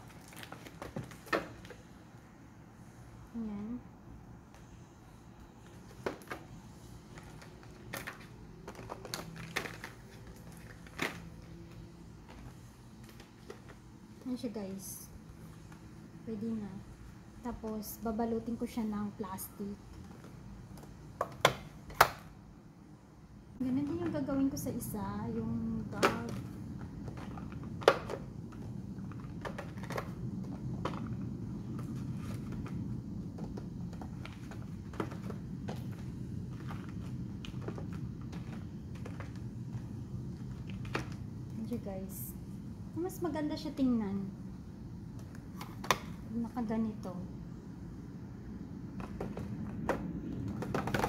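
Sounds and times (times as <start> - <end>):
low background hum: 0.0 - 51.0
soap boxes clicking in plastic tray: 7.2 - 11.2, 26.0 - 28.3, 49.0 - 51.0.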